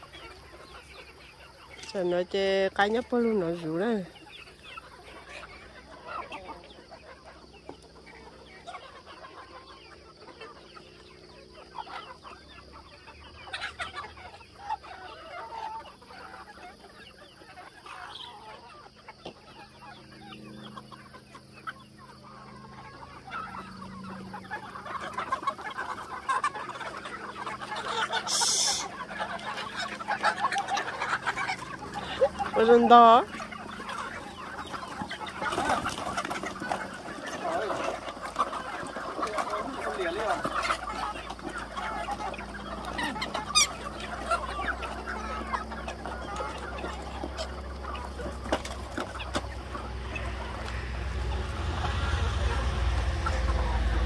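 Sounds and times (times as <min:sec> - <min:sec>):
chickens clucking: 0:00.0 - 0:54.0.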